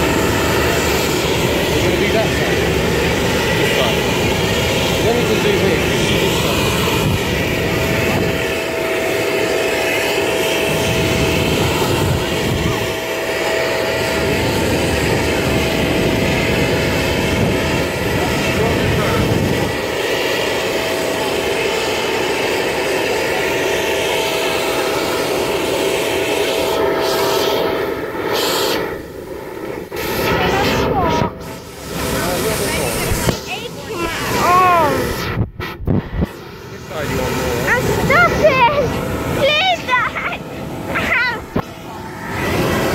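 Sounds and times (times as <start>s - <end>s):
jet turbine whine and rush: 0.0s - 42.9s
murmur of voices: 30.2s - 35.3s.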